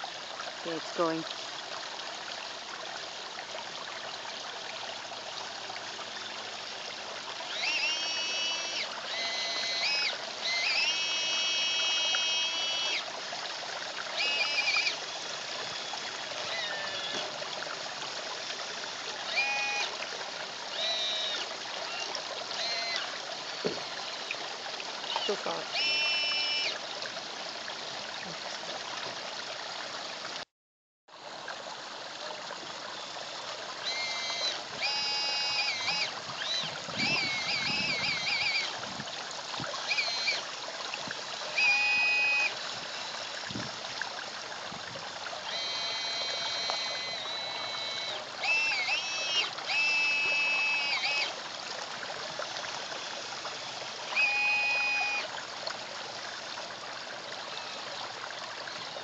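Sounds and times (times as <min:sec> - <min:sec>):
water trickling into a pond: 0:00.0 - 0:30.5, 0:31.1 - 0:59.0
electric motors whining: 0:07.3 - 0:13.1, 0:14.1 - 0:26.8, 0:33.0 - 0:38.8, 0:39.7 - 0:40.6, 0:41.4 - 0:43.8, 0:45.4 - 0:51.4, 0:52.2 - 0:55.3.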